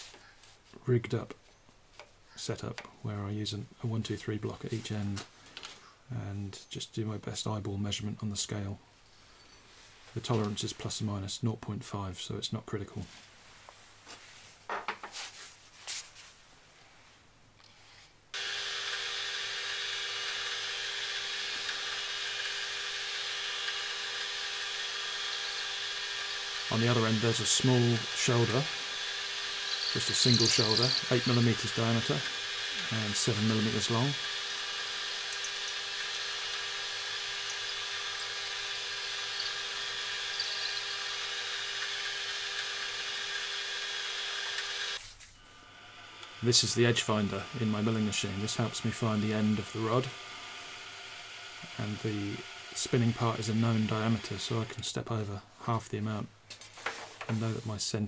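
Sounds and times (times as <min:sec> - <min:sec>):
metal lathe whining: 0:18.4 - 0:45.0, 0:45.6 - 0:54.8.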